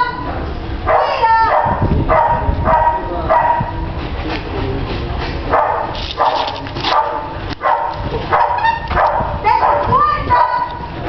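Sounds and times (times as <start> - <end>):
dog barking: 0.9 - 3.7, 5.5 - 10.8.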